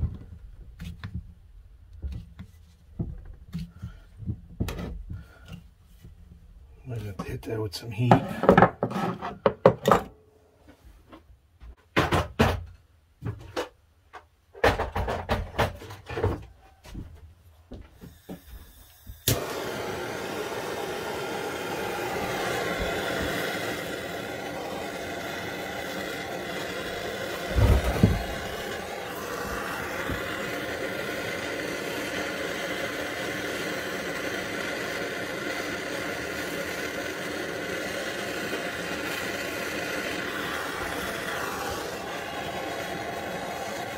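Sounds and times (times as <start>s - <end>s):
propane torch flame hissing: 17.9s - 43.9s
low thump: 27.5s - 28.4s.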